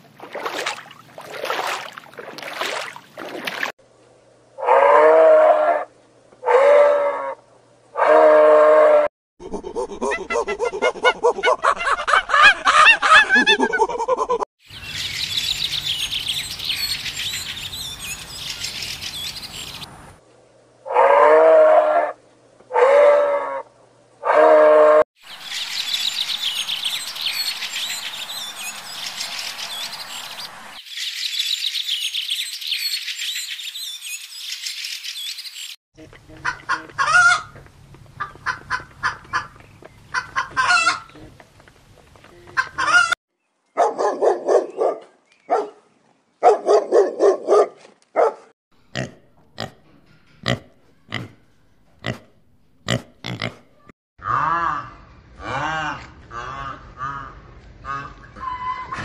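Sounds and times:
chickens squawking: 9.8s - 19.9s, 25.3s - 30.8s, 36.4s - 37.6s, 38.2s - 41.2s, 42.5s - 43.2s
chickens clucking: 36.0s - 41.3s, 42.4s - 43.2s.

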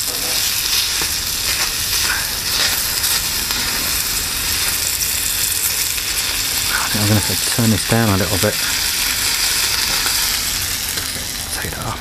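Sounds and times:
utensil scraping a pan: 0.0s - 5.0s
bacon sizzling in a frying pan: 0.0s - 12.0s.

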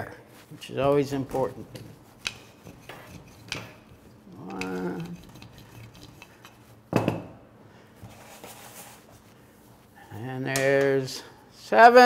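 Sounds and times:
rolling pin working dough: 0.6s - 6.8s.

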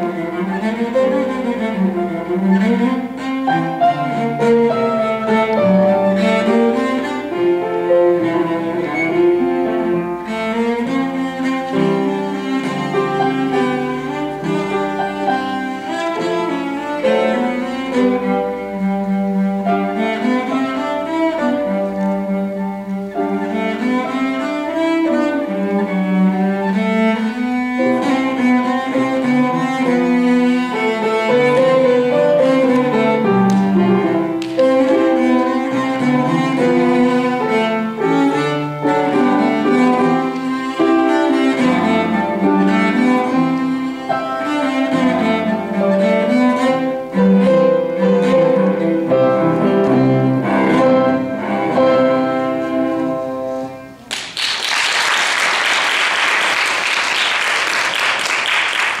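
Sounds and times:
solo cello playing: 0.0s - 54.1s
audience applause: 54.1s - 59.0s.

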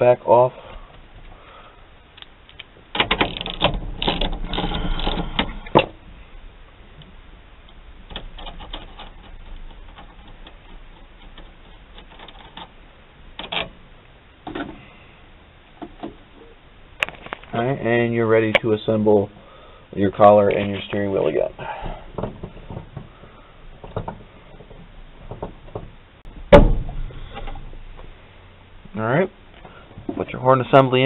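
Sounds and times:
rapid metal clicking and rattling: 2.9s - 6.0s, 7.0s - 13.8s.

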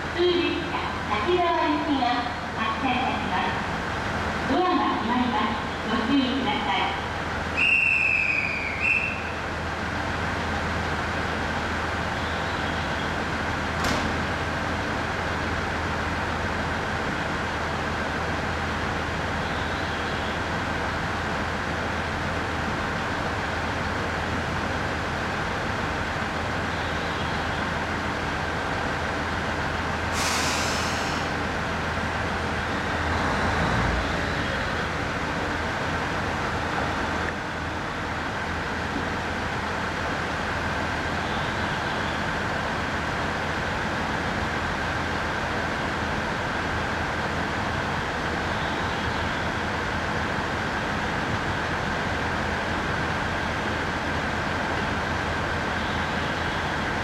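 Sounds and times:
short hiss: 30.1s - 31.4s.

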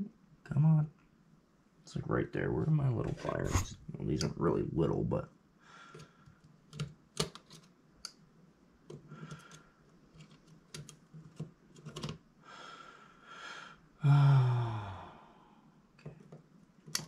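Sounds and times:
loud low groan: 14.0s - 15.5s.

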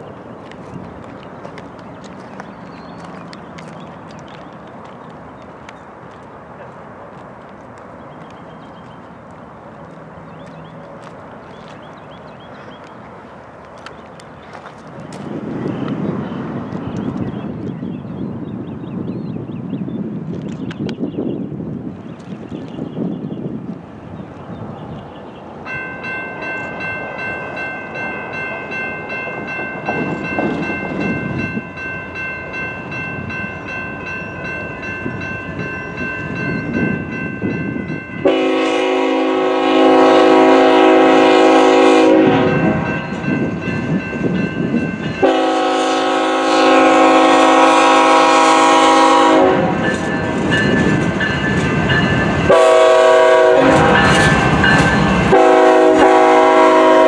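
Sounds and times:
train engine and wheels rumbling: 0.0s - 57.0s
locomotive air horn: 38.2s - 42.9s, 45.2s - 49.9s, 52.5s - 54.4s, 55.3s - 57.0s.

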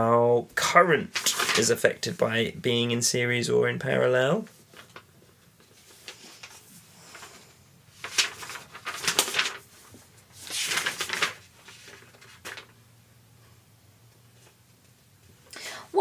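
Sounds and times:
paper rustling: 1.1s - 1.9s, 4.4s - 12.8s.

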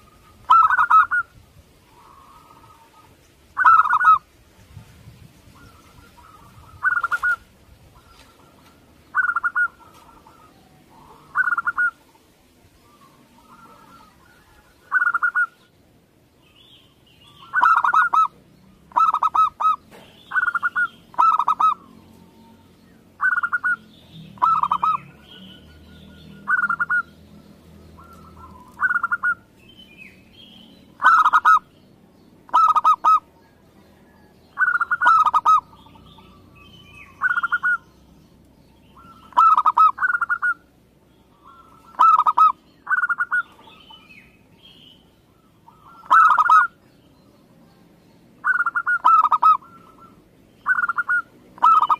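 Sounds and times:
dove cooing: 0.0s - 1.3s, 1.9s - 4.3s, 5.5s - 15.7s, 17.3s - 25.6s, 26.2s - 27.2s, 28.0s - 29.5s, 31.0s - 31.7s, 32.5s - 36.5s, 37.2s - 37.8s, 39.0s - 40.7s, 41.3s - 44.1s, 45.3s - 46.8s, 48.4s - 51.9s
faint bird chirps: 0.0s - 15.8s, 16.4s - 51.9s.

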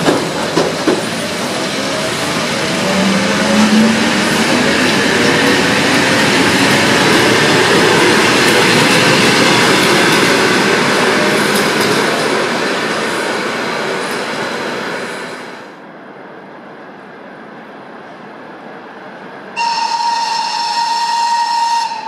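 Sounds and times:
rail joint clicks: 0.0s - 1.3s, 11.2s - 12.4s
train wheels rumbling on rail: 0.0s - 15.9s.

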